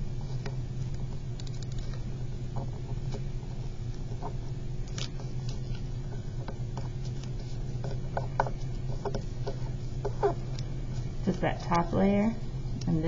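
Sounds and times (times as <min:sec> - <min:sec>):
paper rustling and crinkling: 0:04.2 - 0:11.8.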